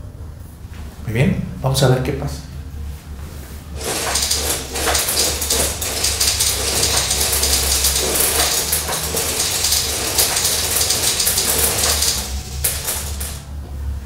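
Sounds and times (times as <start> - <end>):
beads rattling and clicking: 3.8 - 13.4.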